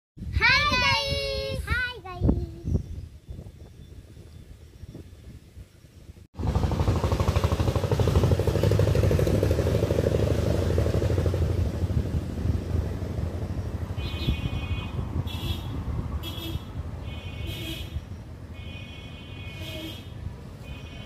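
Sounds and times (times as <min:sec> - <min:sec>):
engine running with even pulsing: 0:06.4 - 0:14.9.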